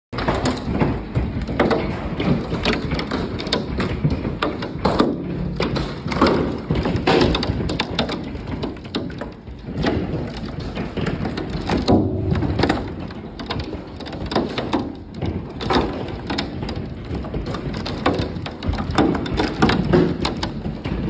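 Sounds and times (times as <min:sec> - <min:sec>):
hailstones hitting wooden deck: 0:00.2 - 0:21.0.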